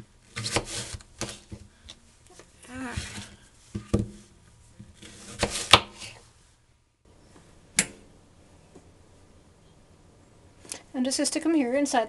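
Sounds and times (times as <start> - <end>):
fruit rustling: 0.2 - 6.6.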